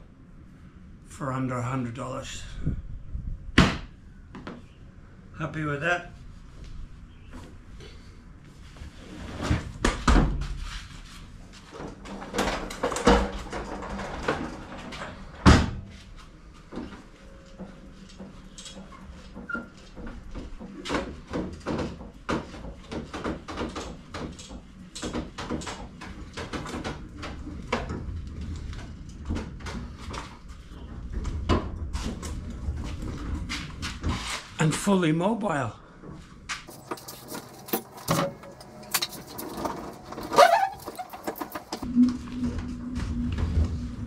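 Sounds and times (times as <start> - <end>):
casters rolling on concrete: 36.1 - 41.9.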